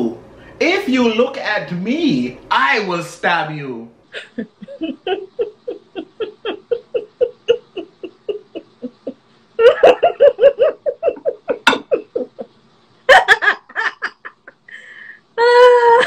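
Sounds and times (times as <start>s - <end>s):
hearty rhythmic laughter: 4.1s - 14.8s.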